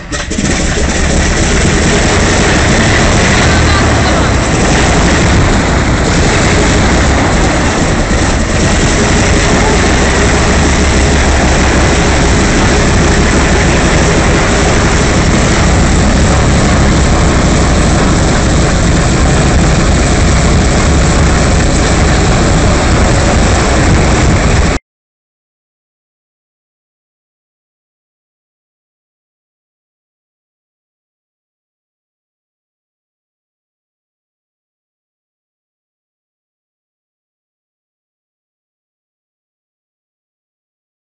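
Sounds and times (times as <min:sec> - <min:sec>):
radial aircraft engine running: 0:00.0 - 0:24.8.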